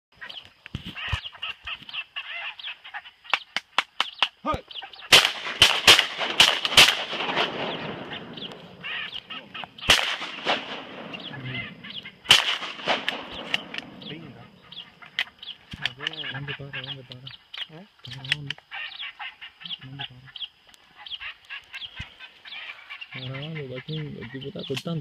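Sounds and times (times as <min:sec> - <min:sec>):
ducks calling: 0:00.1 - 0:25.0
shotgun shots: 0:05.1 - 0:09.1, 0:09.8 - 0:14.2.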